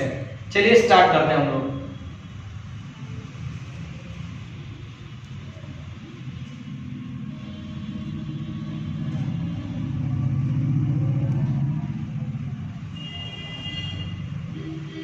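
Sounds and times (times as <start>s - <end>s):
engine rumble: 5.2s - 13.0s.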